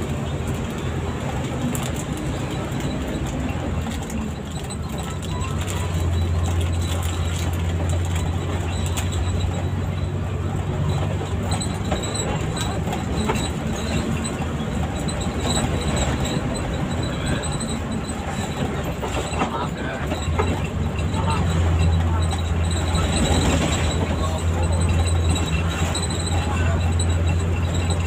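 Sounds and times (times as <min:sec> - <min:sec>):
bus engine drone: 0:00.0 - 0:28.0
road noise: 0:00.0 - 0:28.0.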